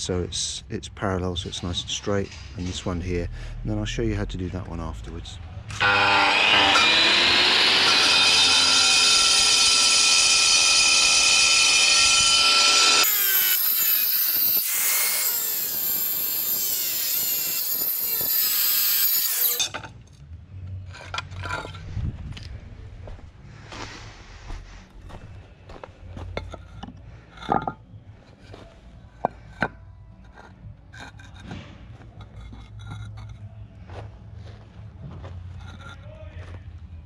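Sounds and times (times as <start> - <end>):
angle grinder cutting stone: 5.8 - 19.9.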